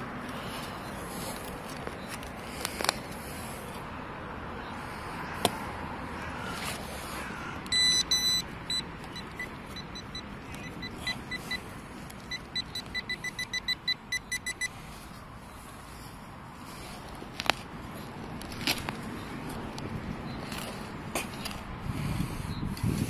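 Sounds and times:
metal detector beeping: 7.6s - 15.1s.

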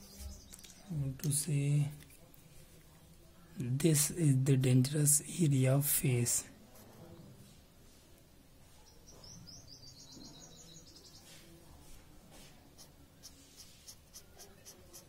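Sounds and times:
pen scratching on paper: 12.7s - 15.0s.

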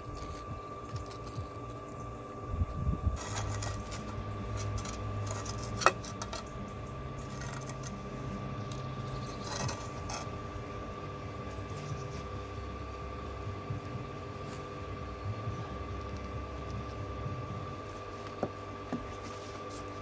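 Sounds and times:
steady low hum: 0.0s - 20.0s
trowel scraping wet cement: 3.2s - 6.5s, 7.2s - 8.0s, 9.1s - 10.4s.

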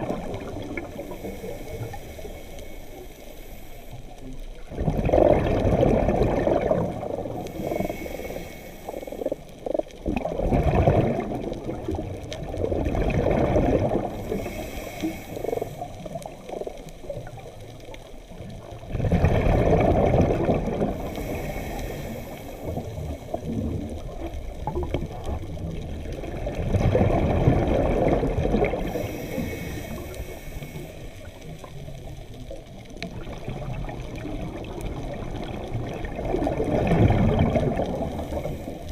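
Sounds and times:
exhaled bubbles burbling underwater: 0.0s - 3.1s, 4.0s - 38.9s
regulator inhale hiss: 0.6s - 4.4s, 7.0s - 9.7s, 14.0s - 18.0s, 20.8s - 24.2s, 28.7s - 32.5s, 38.0s - 38.9s.

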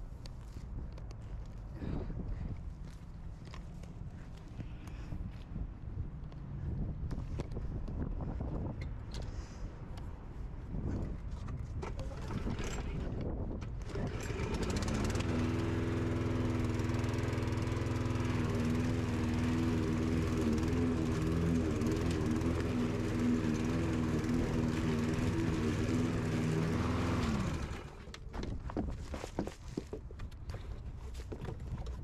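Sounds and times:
lawn mower engine running: 11.9s - 13.1s, 13.7s - 28.2s.

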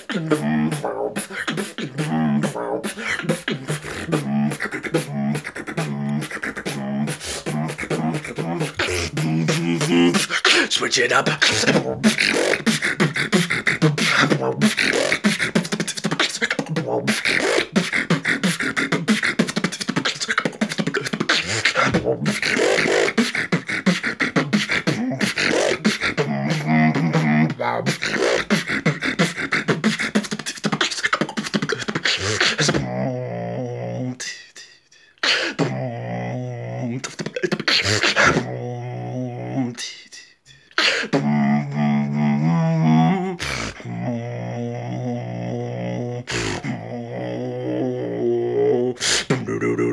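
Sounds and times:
vocal beatboxing: 0.0s - 49.9s.

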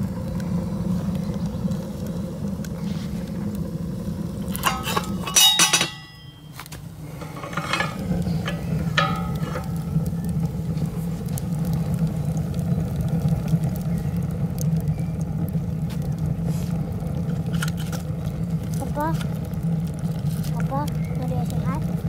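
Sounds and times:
wood fire rumbling: 0.0s - 22.0s
metal stove clanking: 4.4s - 10.1s.

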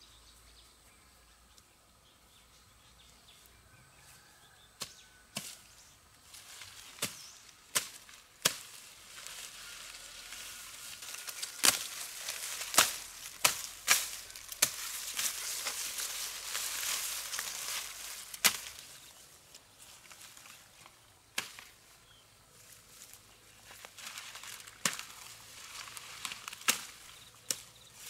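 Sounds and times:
rustling hiss: 5.6s - 22.0s
sharp chopping strikes: 12.7s - 14.9s.

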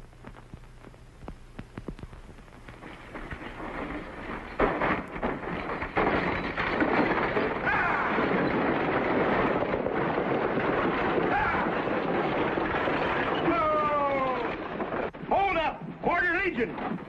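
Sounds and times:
galloping hooves: 0.0s - 17.0s
sharp cracks: 0.0s - 17.0s
rolling wheels: 2.6s - 17.0s
people shouting: 7.6s - 8.2s, 11.2s - 11.7s.

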